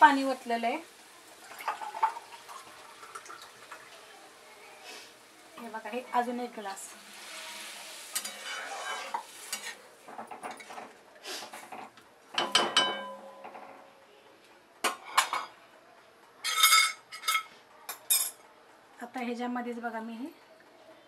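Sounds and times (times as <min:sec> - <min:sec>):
ladle scraping metal pan: 0:07.1 - 0:10.8.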